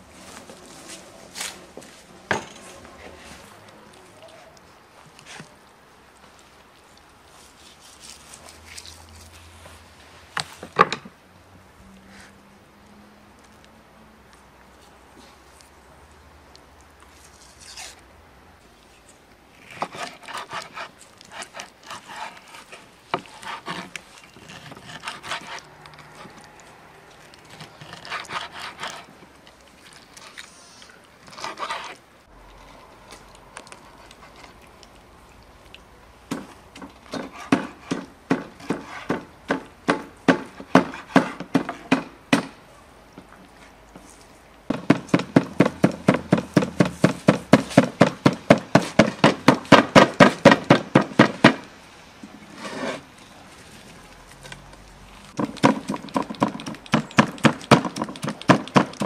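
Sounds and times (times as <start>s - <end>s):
cleaver chopping meat on wood: 36.3s - 42.6s, 44.7s - 51.7s, 55.4s - 59.0s.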